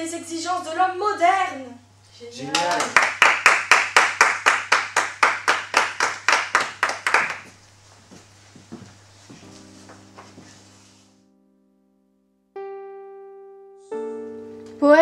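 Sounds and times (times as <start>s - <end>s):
rhythmic hand clapping: 2.5s - 7.6s
faint footsteps on hard floor: 7.4s - 11.1s.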